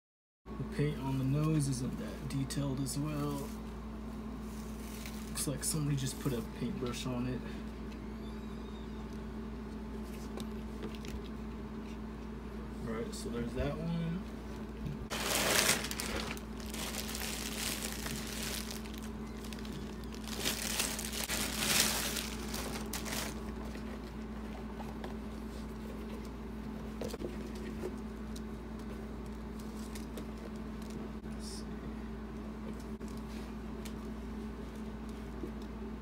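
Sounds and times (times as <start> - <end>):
steady low hum: 0.5 - 36.0
plastic bag crinkling: 15.1 - 23.9.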